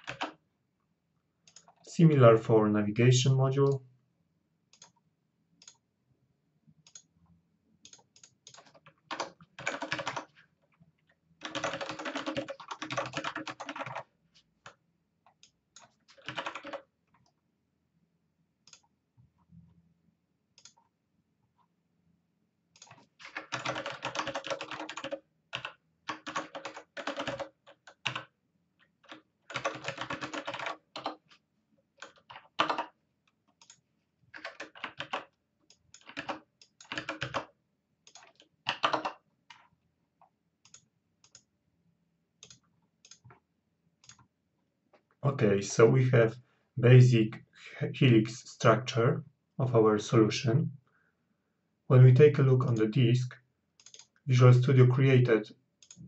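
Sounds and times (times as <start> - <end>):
computer keyboard typing: 0.0 - 0.4, 7.9 - 10.4, 11.4 - 14.1, 15.4 - 16.8, 22.8 - 28.3, 29.0 - 31.4, 32.0 - 37.5, 38.1 - 39.2, 53.8 - 54.2.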